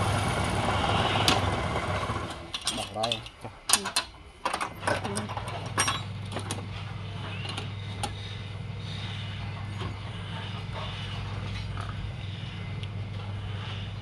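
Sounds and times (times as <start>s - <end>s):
wood lathe humming: 0.0s - 2.5s.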